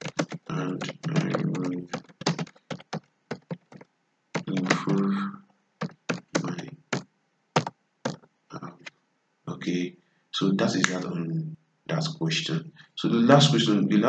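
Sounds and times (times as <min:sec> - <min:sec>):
keyboard typing: 0:00.0 - 0:05.1, 0:05.8 - 0:08.9
low voice: 0:00.5 - 0:01.9, 0:04.5 - 0:05.4, 0:06.4 - 0:06.7, 0:08.5 - 0:08.8, 0:09.5 - 0:14.0.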